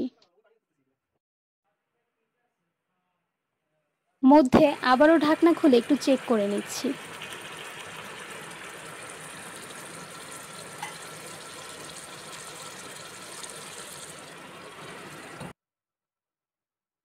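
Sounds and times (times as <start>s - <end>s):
sauce bubbling and sizzling in a pot: 4.6s - 15.6s.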